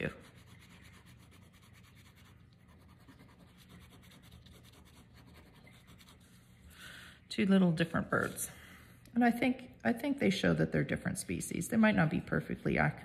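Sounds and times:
pen scratching on paper: 0:00.0 - 0:06.4
low steady hum: 0:00.0 - 0:13.0.

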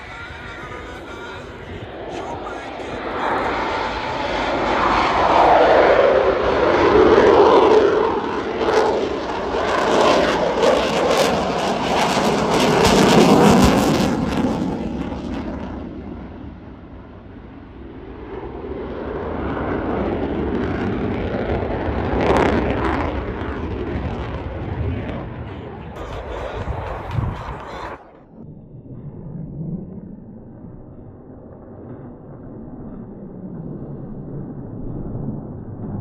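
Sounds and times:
jet engine roar passing: 0:00.0 - 0:36.0
afterburner crackling: 0:21.0 - 0:28.5.

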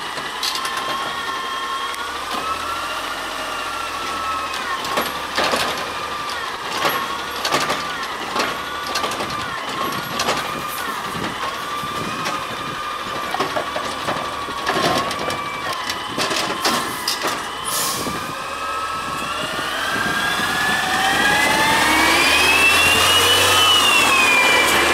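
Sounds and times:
garbage truck pulling away: 0:00.0 - 0:24.9
hydraulic whine: 0:00.0 - 0:24.9
clunks of garbage cart: 0:04.6 - 0:12.4, 0:13.1 - 0:18.3.

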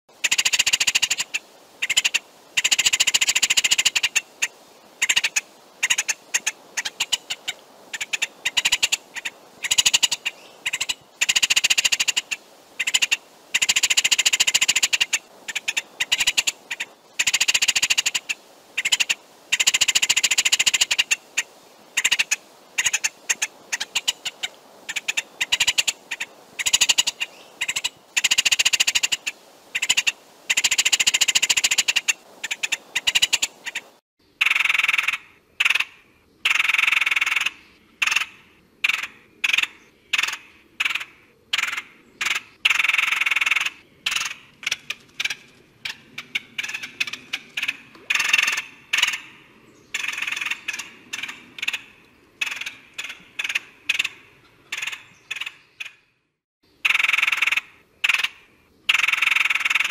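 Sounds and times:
woodpecker rattling calls: 0:00.2 - 0:56.2, 0:56.8 - 0:59.9.

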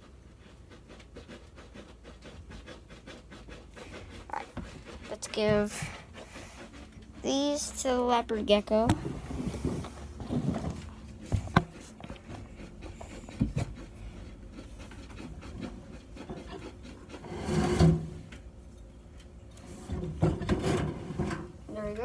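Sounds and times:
light knocks and scrapes: 0:04.1 - 0:07.9, 0:08.6 - 0:13.9.

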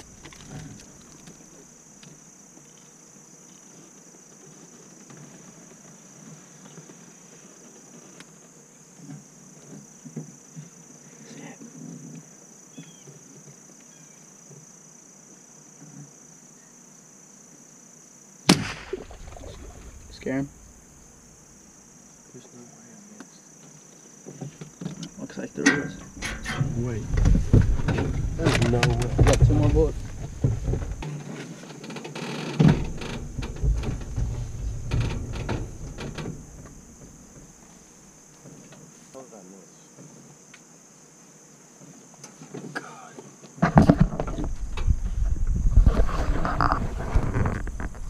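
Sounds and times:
high insect drone: 0:00.0 - 0:48.0
rifle shot with echo: 0:18.5 - 0:19.6.

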